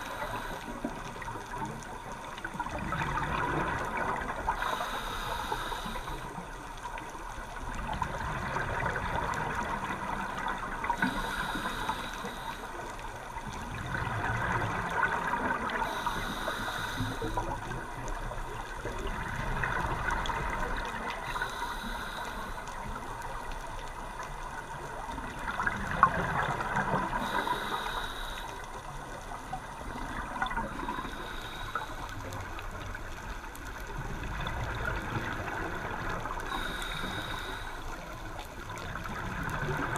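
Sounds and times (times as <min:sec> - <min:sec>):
regulator inhale hiss: 0:00.0 - 0:01.4, 0:03.8 - 0:06.5, 0:10.8 - 0:13.5, 0:15.6 - 0:17.8, 0:20.3 - 0:23.5, 0:27.0 - 0:33.8, 0:36.0 - 0:38.6
exhale bubbling gurgles: 0:00.0 - 0:39.9.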